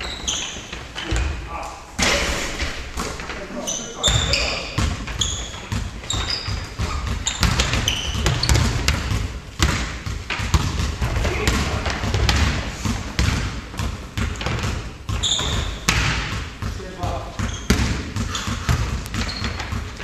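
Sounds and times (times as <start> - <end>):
sneaker squeaking: 0.0 - 20.0
basketball bouncing: 4.0 - 20.0.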